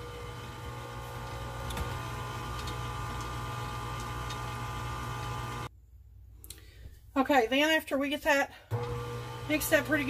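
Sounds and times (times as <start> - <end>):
stand mixer motor whine: 0.0 - 5.7, 8.7 - 10.0.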